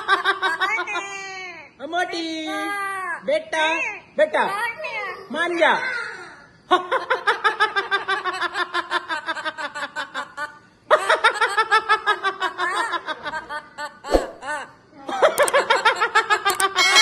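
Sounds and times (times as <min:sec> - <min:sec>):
parrot mimicking laughter: 0:14.0 - 0:15.6, 0:16.5 - 0:17.0.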